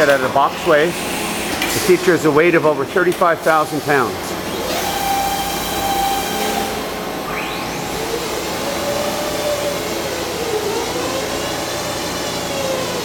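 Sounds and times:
machinery whirring: 0.0 - 13.0
quick rising whine: 4.6 - 13.0.

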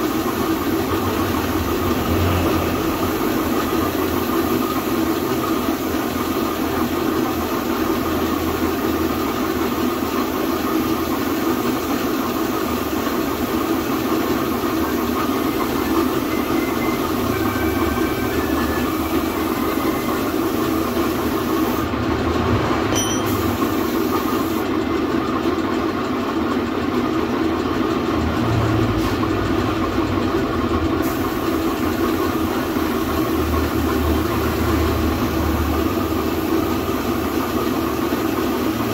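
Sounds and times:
spray gun hissing: 0.0 - 2.0, 2.9 - 16.2, 18.9 - 21.9, 23.3 - 24.6, 31.0 - 34.7, 35.8 - 38.9
air compressor running: 0.0 - 38.9.

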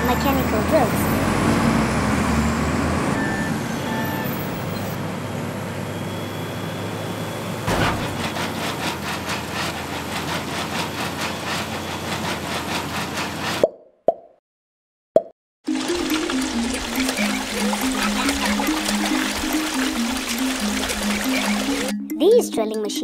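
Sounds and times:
heavy engine rumbling: 0.0 - 13.2
thud: 7.7 - 8.4
drill pounding into ground: 7.7 - 13.6.

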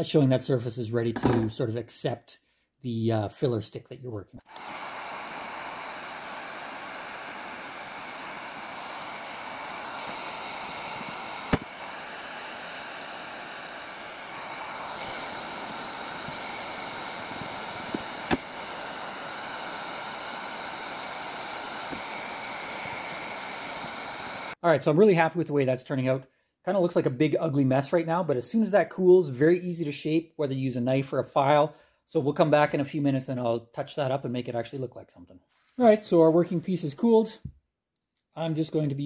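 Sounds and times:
heat gun blowing: 4.4 - 24.6.

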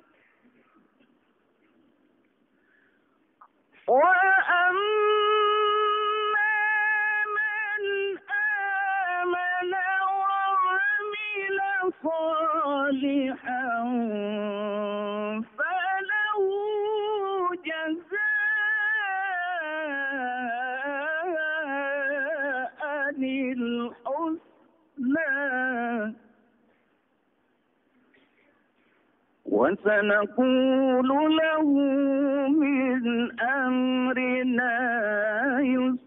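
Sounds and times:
man chanting melodically: 29.4 - 36.0.

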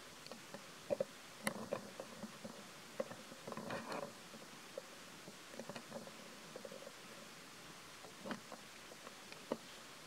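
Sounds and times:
faint soft clicks: 0.2 - 7.0, 8.0 - 9.7.

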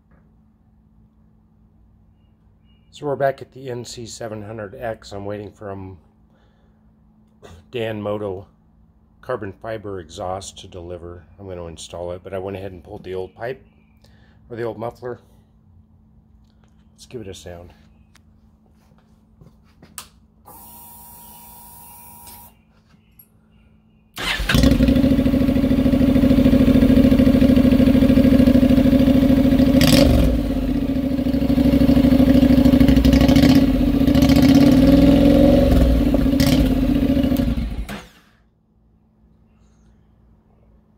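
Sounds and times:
loud motorcycle engine running: 24.2 - 38.1.

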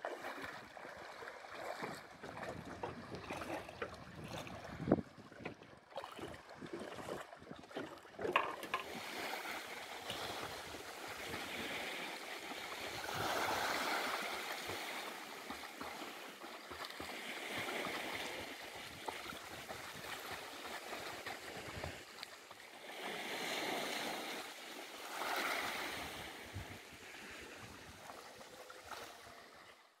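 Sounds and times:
sea surf washing in and out: 8.4 - 29.8.

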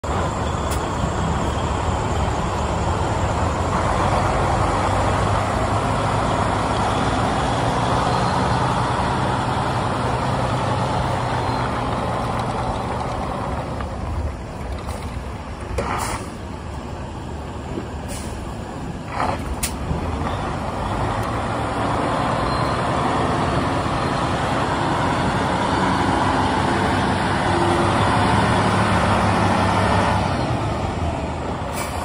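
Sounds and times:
diesel truck engine idling: 0.0 - 32.0
short air hisses: 18.1 - 18.4, 31.7 - 32.0.

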